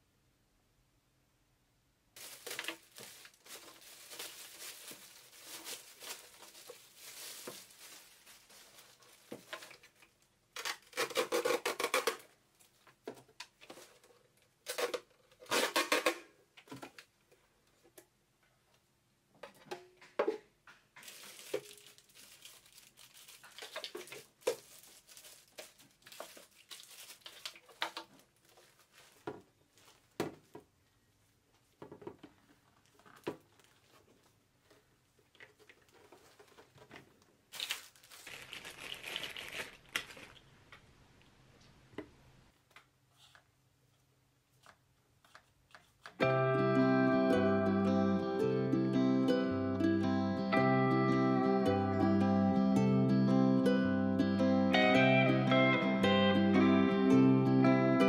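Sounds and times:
plastic wrap crinkling: 0:02.2 - 0:13.0, 0:21.0 - 0:30.5, 0:31.5 - 0:41.4.

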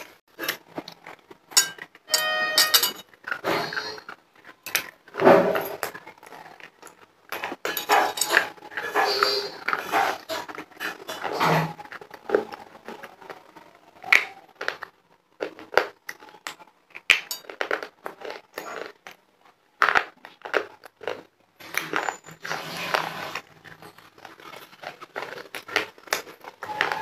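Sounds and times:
chalk being bitten and chewed: 0:19.8 - 0:27.0.

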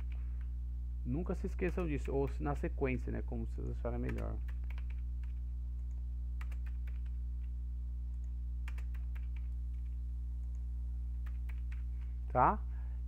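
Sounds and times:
computer keyboard typing: 0:00.0 - 0:00.5, 0:03.6 - 0:07.6, 0:08.2 - 0:10.6, 0:11.2 - 0:12.0
low electrical hum: 0:00.0 - 0:13.0.

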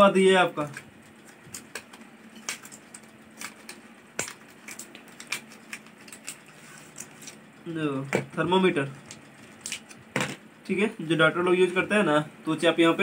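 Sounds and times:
packaging crinkling: 0:00.6 - 0:07.5.

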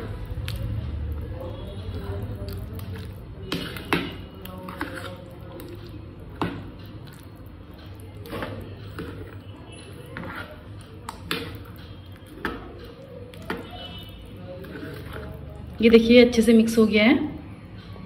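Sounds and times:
wet squelching stirring: 0:00.0 - 0:18.0.

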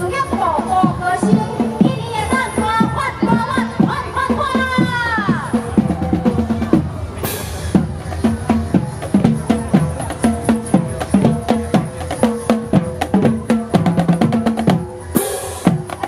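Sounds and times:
snare drums: 0:00.6 - 0:16.0
bass drums: 0:02.6 - 0:16.0
cymbals: 0:06.7 - 0:16.0.

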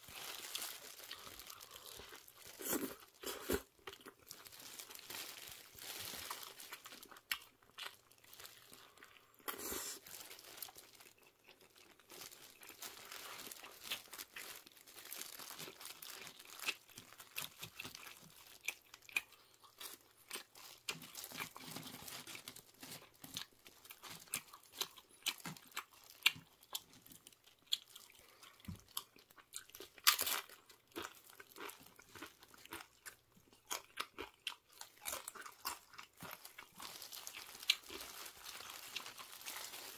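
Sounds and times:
paper and plastic crinkling: 0:00.0 - 0:03.5, 0:04.3 - 0:07.1, 0:09.5 - 0:18.4, 0:20.6 - 0:23.4, 0:36.2 - 0:39.9
chewing and crunching food: 0:00.0 - 0:39.9.

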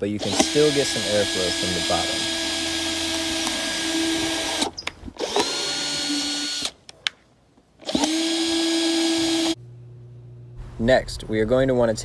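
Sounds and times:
power drill boring into wood: 0:00.2 - 0:06.8, 0:07.8 - 0:09.6.

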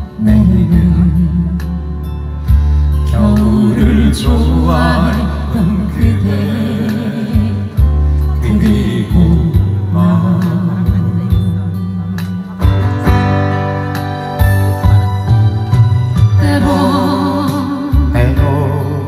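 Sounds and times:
acoustic guitar: 0:00.0 - 0:19.0
person singing: 0:02.9 - 0:13.2, 0:16.4 - 0:19.0.

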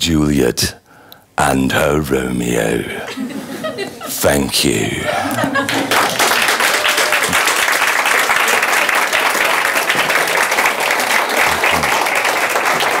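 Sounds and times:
audience applause: 0:05.5 - 0:13.0.

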